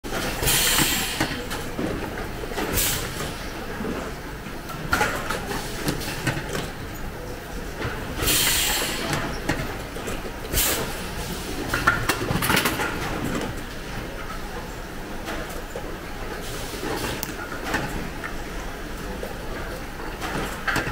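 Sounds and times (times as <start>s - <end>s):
knocks and clatter of parts: 11.7s - 13.6s.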